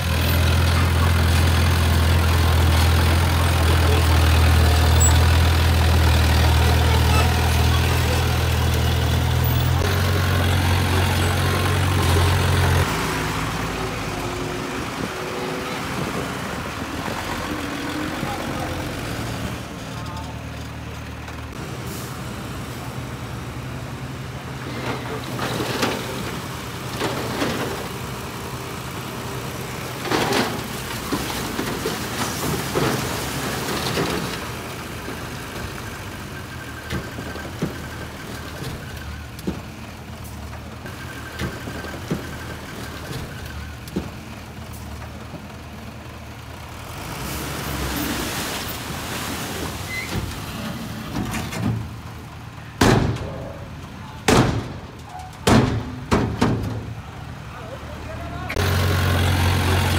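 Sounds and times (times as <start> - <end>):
bulldozer diesel engine running: 0.0 - 59.9
metal clanking and scraping: 24.6 - 28.0, 30.0 - 34.6, 49.7 - 52.1
loud bangs: 54.2 - 57.0.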